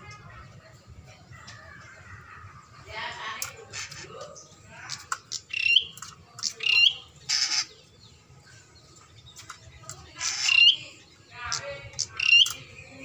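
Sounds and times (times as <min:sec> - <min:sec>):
bird chirping: 0:03.4 - 0:13.0
harsh rasping bird call: 0:06.6 - 0:07.9, 0:10.2 - 0:11.0.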